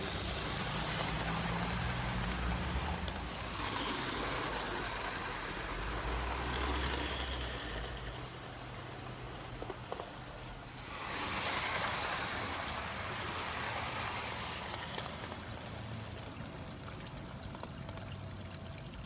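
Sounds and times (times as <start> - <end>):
model train wheels on rails: 0.0 - 18.8.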